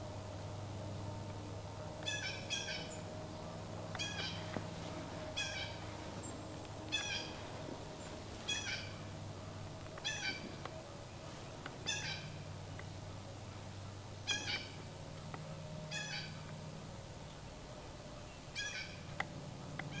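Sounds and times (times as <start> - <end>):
squirrel barking: 2.0 - 4.6, 5.3 - 6.3, 6.9 - 9.2, 10.0 - 10.6, 11.8 - 12.4, 14.2 - 14.9, 15.9 - 16.5, 18.5 - 19.1.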